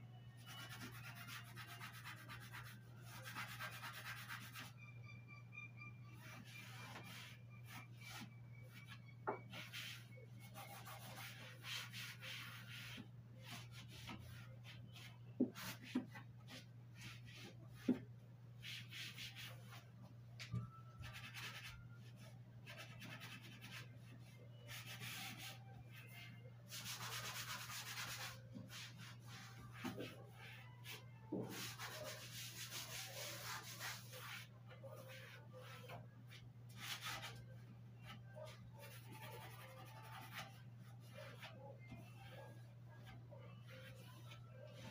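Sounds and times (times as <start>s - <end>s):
sponge scrubbing a shelf: 6.0s - 18.0s, 21.0s - 37.4s, 38.0s - 44.9s.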